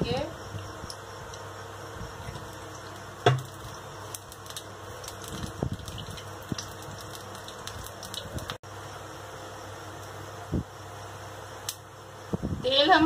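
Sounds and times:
steady low hum: 0.0s - 13.0s
oil ticking and crackling: 0.4s - 8.6s.

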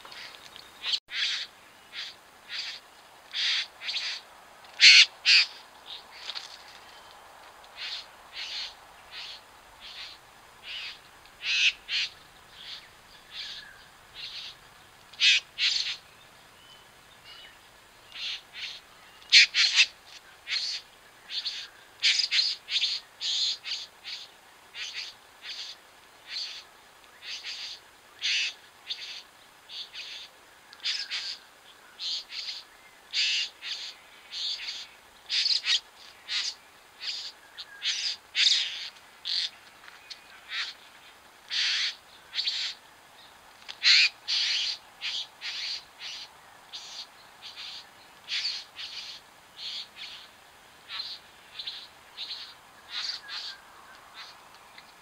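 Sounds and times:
birds making harsh scratchy calls: 0.1s - 4.2s, 4.8s - 6.6s, 7.8s - 13.6s, 14.2s - 14.6s, 15.2s - 16.0s, 18.2s - 26.6s, 27.2s - 31.4s, 32.0s - 39.6s, 40.5s - 40.9s, 41.5s - 42.8s, 43.8s - 50.3s, 50.9s - 53.6s.

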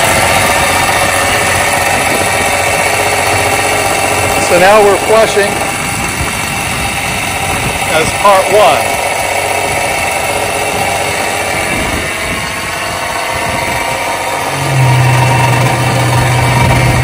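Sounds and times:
low hum: 0.0s - 17.0s
watercraft engine idling: 0.0s - 17.0s.

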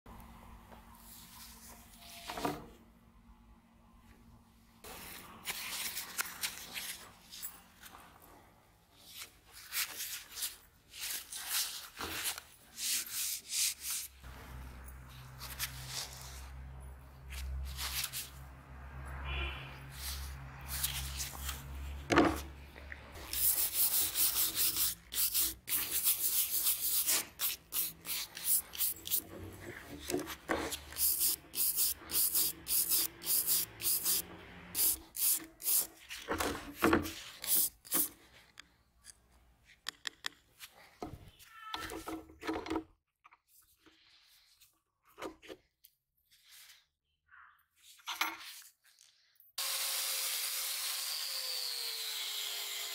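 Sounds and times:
wire brush scrubbing metal: 30.8s - 36.0s.

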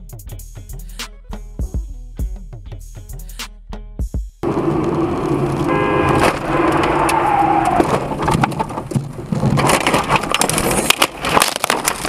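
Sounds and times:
falling whine: 4.4s - 8.5s
car crash impacts crunching: 4.4s - 12.0s.

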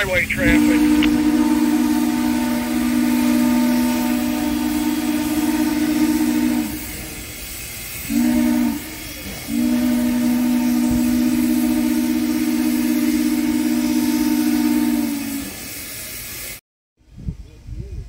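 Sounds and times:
distant locomotive horn blasts: 0.0s - 7.2s, 8.0s - 15.6s.

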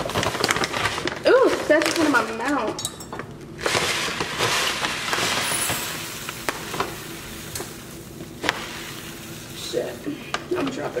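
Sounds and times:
rice poured into pot: 3.6s - 11.0s.

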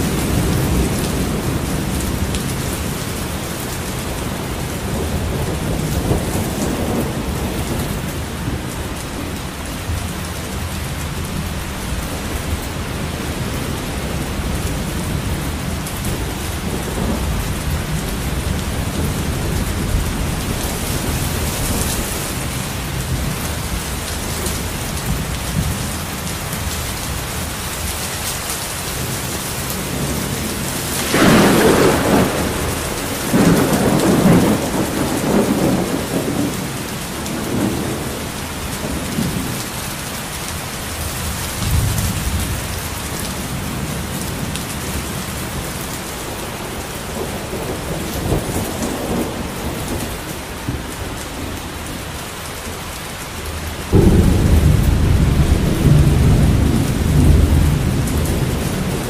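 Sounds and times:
thunder rumbling: 0.0s - 27.6s, 28.8s - 52.4s, 53.5s - 59.0s
heavy rain: 0.0s - 59.0s.

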